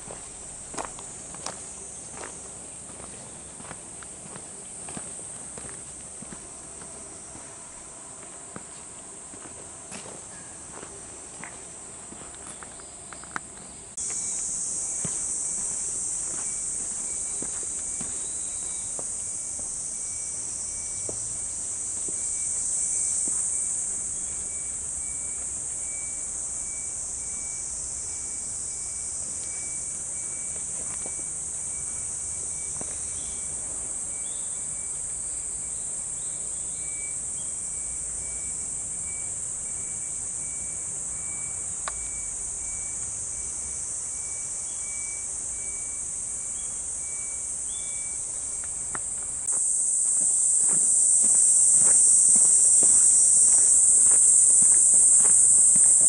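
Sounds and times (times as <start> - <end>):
faint pulsing insect or bird: 0.0 - 56.0
insects shrilling: 12.1 - 56.0.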